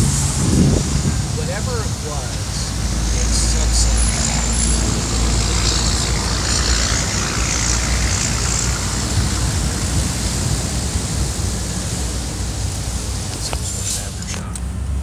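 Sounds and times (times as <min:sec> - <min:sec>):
traffic noise: 0:00.0 - 0:15.0
car cabin rumble: 0:05.5 - 0:15.0
hiss: 0:05.6 - 0:14.3.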